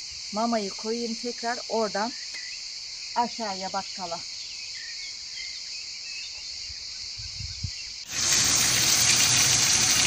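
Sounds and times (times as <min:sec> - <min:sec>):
crickets chirring: 0:00.0 - 0:10.0
faint bird chirps: 0:01.6 - 0:08.1
peppers sizzling in oil: 0:08.1 - 0:10.0.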